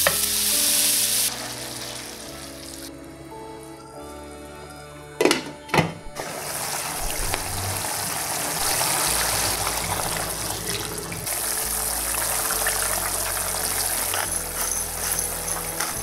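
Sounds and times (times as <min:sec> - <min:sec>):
sauce pouring into pan: 0:06.2 - 0:16.0.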